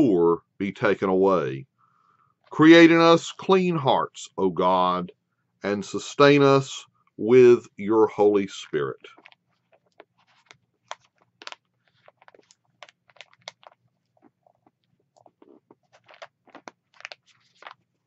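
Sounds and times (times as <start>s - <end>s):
pages of paper turning: 9.1s - 13.8s, 15.8s - 18.0s.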